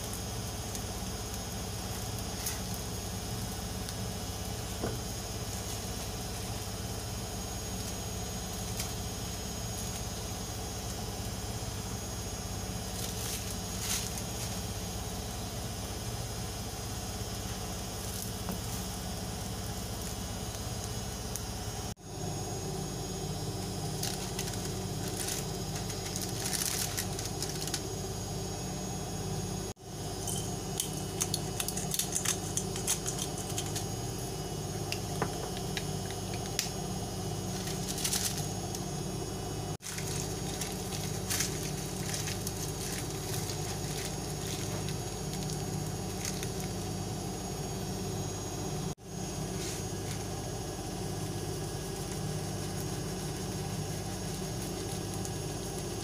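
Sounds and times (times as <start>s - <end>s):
steady low hum: 0.0s - 56.0s
parchment paper rustling and crinkling: 1.8s - 2.9s, 12.8s - 14.8s, 23.8s - 27.9s, 37.4s - 38.8s, 39.8s - 46.9s, 51.9s - 56.0s.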